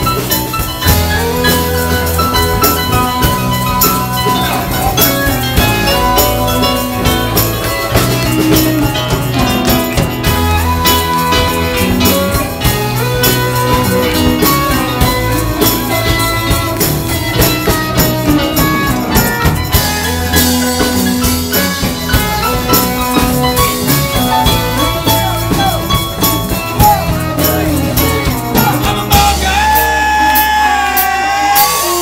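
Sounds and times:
drums with steady beat: 0:00.0 - 0:32.0
electric guitar: 0:00.0 - 0:32.0.

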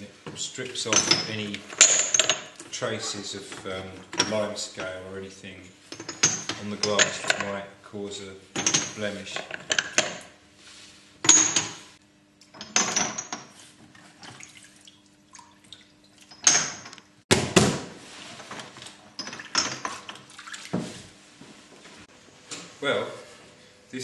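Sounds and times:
glass clinking and splashing: 0:14.2 - 0:16.9.

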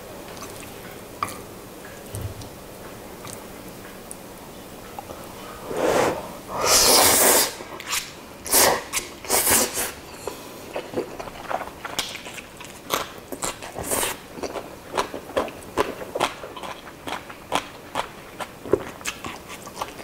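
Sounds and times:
man slurping noodles: 0:05.7 - 0:07.6.

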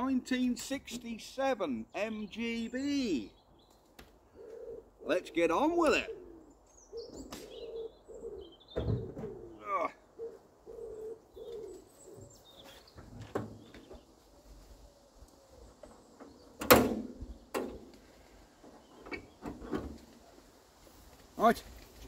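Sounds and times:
birds calling: 0:00.0 - 0:22.0
light clunks and knocks: 0:12.9 - 0:14.0, 0:15.8 - 0:18.0.

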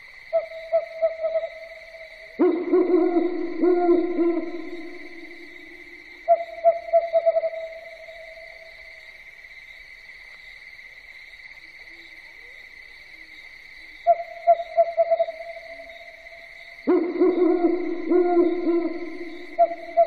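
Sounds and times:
owl hooting: 0:00.3 - 0:08.4, 0:14.1 - 0:16.2, 0:16.9 - 0:20.0
steady high-pitched drone: 0:02.4 - 0:06.0.

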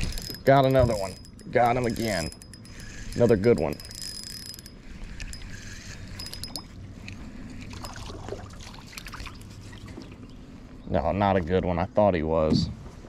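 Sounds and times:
fishing reel clicks: 0:00.0 - 0:08.0.

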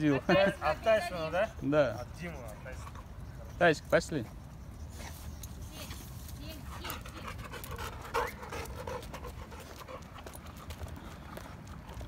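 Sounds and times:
dog panting: 0:00.0 - 0:12.0
running footsteps on asphalt: 0:06.3 - 0:12.0.

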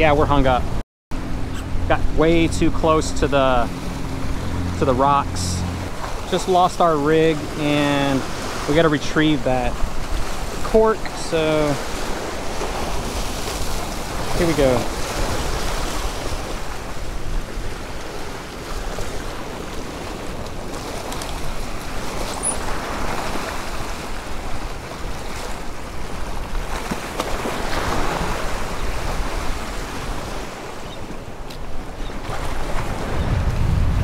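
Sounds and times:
waves breaking against rocks: 0:01.9 - 0:34.0
wind rumbling on microphone: 0:09.3 - 0:34.0.

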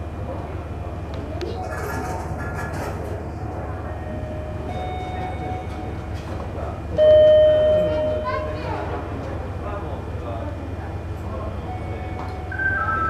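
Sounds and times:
loud single-pitched tone: 0:07.0 - 0:08.6
faint electronic tone: 0:11.6 - 0:13.0.

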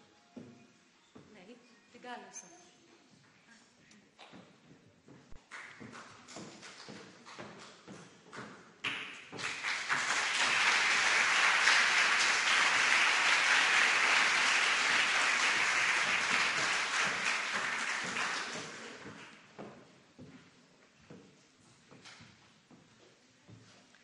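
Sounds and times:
audience applauding: 0:09.3 - 0:19.4.

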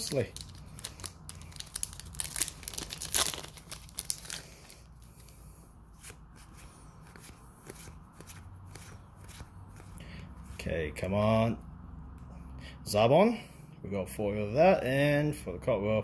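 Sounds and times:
foil wrapper crinkling and tearing: 0:00.0 - 0:04.7
cards rustling and clicking: 0:00.0 - 0:05.4, 0:06.0 - 0:10.0.

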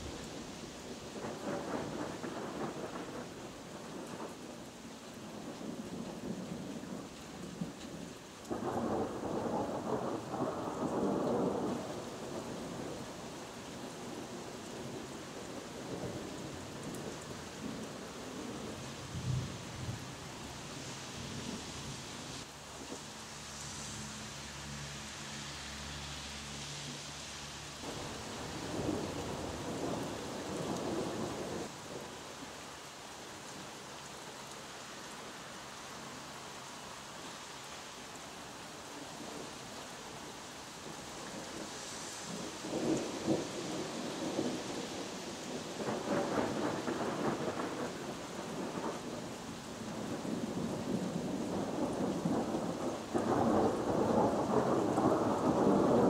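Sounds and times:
rain hissing: 0:00.0 - 0:56.0
thunder rumbling: 0:01.1 - 0:04.4, 0:08.5 - 0:13.2, 0:27.8 - 0:32.0, 0:42.3 - 0:49.3, 0:49.9 - 0:56.0.

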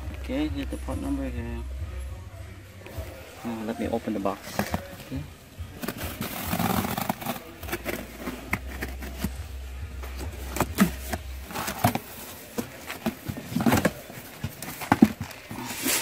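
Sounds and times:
knife cutting cardboard box: 0:05.8 - 0:09.4.

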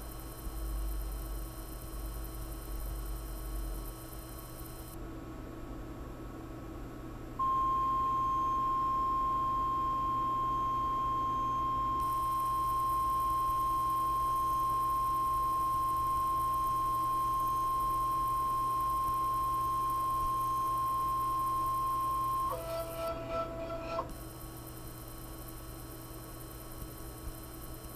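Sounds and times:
stepper motor whining: 0:20.1 - 0:24.2.

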